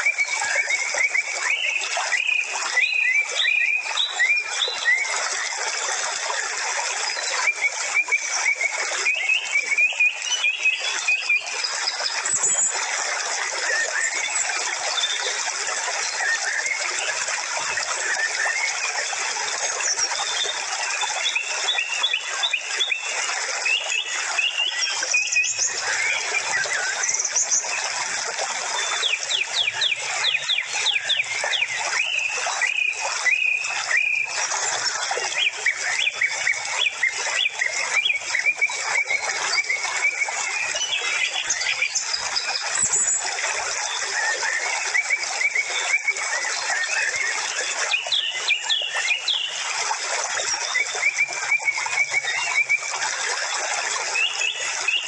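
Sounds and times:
birds chirping and whistling: 0:00.0 - 0:05.5, 0:07.0 - 0:12.8, 0:19.7 - 0:49.8, 0:50.4 - 0:55.0.

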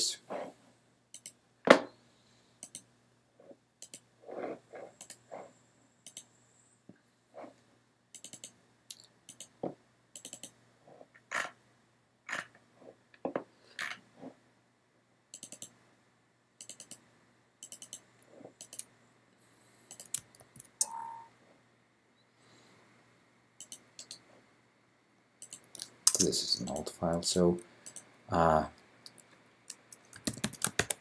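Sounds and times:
computer mouse clicking: 0:01.1 - 0:01.4, 0:02.6 - 0:02.9, 0:03.8 - 0:04.1, 0:05.0 - 0:05.2, 0:06.0 - 0:06.3, 0:08.2 - 0:08.6, 0:09.3 - 0:09.6, 0:10.2 - 0:10.6, 0:15.3 - 0:15.8, 0:16.6 - 0:17.0, 0:17.6 - 0:18.9, 0:19.9 - 0:20.7, 0:23.6 - 0:24.2, 0:25.4 - 0:26.9, 0:27.8 - 0:28.1, 0:29.1 - 0:31.0
brief tone: 0:20.8 - 0:21.4.

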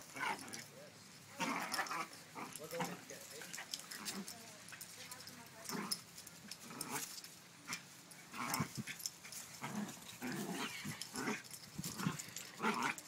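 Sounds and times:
dogs play-growling: 0:00.0 - 0:13.0.

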